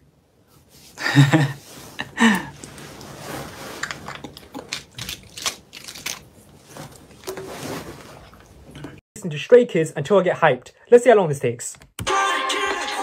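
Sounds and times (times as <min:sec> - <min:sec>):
plastic wrapper crinkling: 0:03.8 - 0:07.4.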